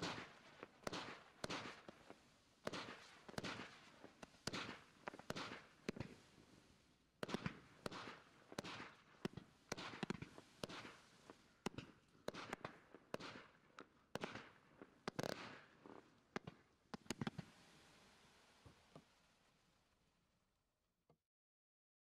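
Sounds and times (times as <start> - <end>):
firework pops and hisses: 0.0 - 19.6.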